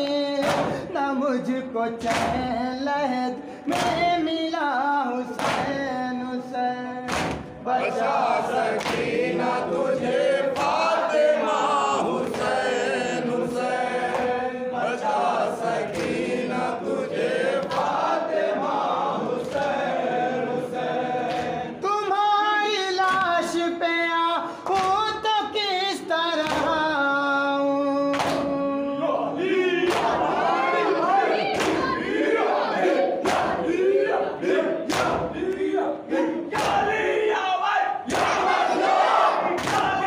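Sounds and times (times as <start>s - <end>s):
men chanting a lament: 0.0s - 40.0s
chest-beating slaps: 0.4s - 0.8s, 5.4s - 5.8s, 7.1s - 7.6s, 8.8s - 9.2s, 28.1s - 28.5s, 29.9s - 30.2s, 31.5s - 31.9s, 34.9s - 35.7s, 36.6s - 36.9s, 39.6s - 40.0s.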